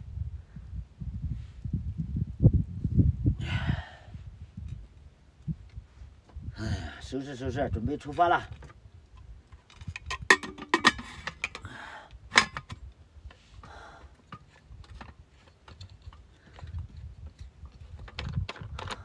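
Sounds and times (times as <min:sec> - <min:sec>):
small objects clicking and knocking: 0:09.5 - 0:11.7, 0:14.2 - 0:19.0.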